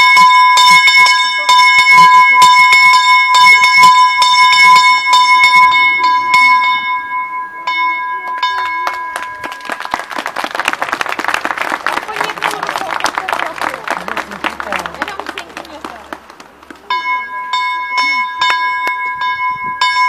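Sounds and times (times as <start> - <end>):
bell ringing tone: 0.0 - 10.1, 16.9 - 20.0
applause: 8.2 - 16.9
small bell clapper striking: 16.9 - 20.0.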